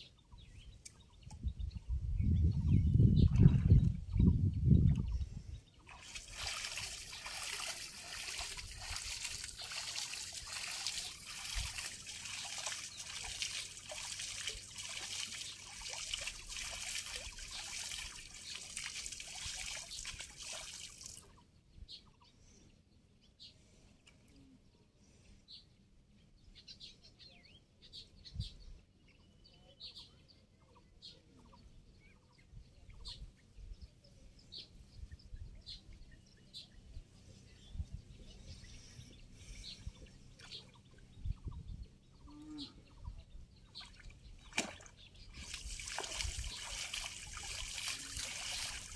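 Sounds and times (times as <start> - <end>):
water trickling and splashing: 3.1 - 4.2, 5.8 - 21.4, 39.6 - 41.6, 43.6 - 48.9
faint bird chirps: 21.2 - 45.6.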